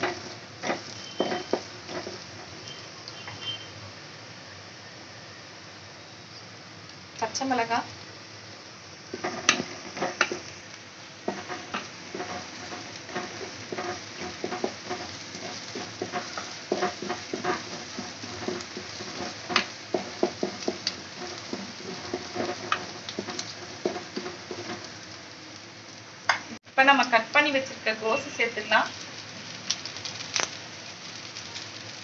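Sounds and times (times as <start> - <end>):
spatula scraping metal pan: 0.0 - 2.2, 11.3 - 24.9
onions sizzling in oil: 0.0 - 32.0.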